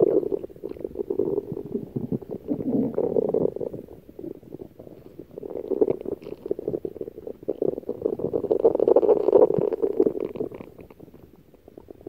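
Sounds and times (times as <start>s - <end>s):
stomach growling: 0.0s - 12.0s.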